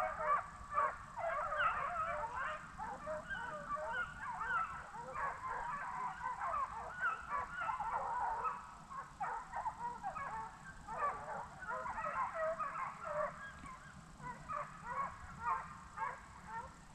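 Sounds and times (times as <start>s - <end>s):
hounds baying: 0.0s - 16.8s.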